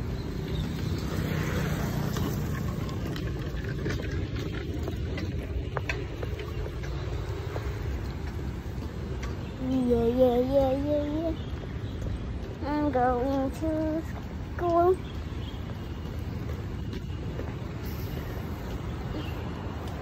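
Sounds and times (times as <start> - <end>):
low outdoor rumble: 0.9 - 11.4.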